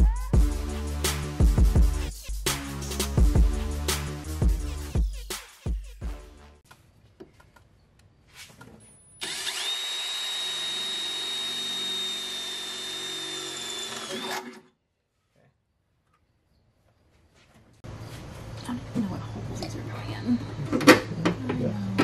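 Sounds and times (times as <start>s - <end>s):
power drill drilling into sheet metal: 9.2s - 14.7s.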